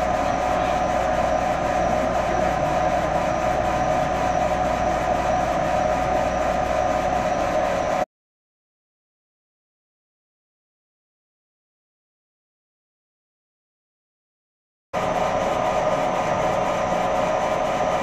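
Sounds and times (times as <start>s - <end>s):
laser engraver humming and whirring: 0.0s - 8.0s, 15.0s - 18.0s.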